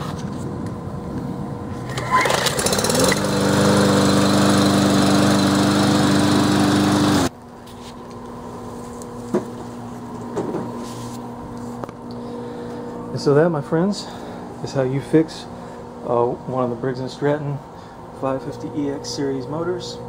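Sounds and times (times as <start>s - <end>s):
lawn mower engine running: 1.6s - 7.3s.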